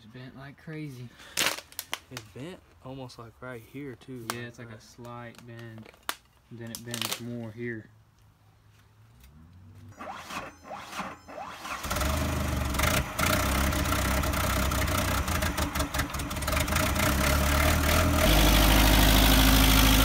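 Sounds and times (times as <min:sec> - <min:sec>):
forklift engine running: 0:10.0 - 0:20.0.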